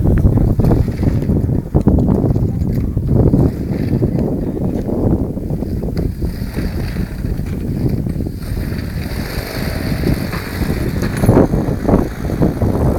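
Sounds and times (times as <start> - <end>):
wind buffeting microphone: 0.0 - 12.9.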